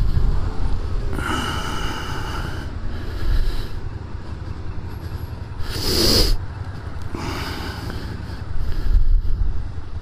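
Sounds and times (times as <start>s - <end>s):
motorcycle engine low rumble: 0.0s - 10.0s.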